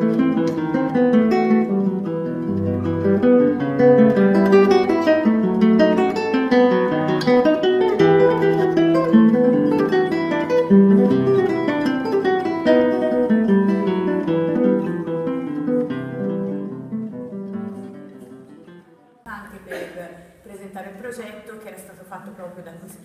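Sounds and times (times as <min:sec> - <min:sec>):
acoustic guitar music: 0:00.0 - 0:22.6.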